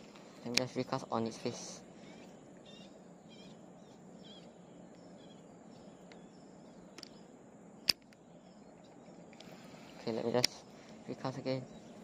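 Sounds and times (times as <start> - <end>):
birds chirping faintly: 0.0 - 12.0
sharp click: 7.8 - 8.2.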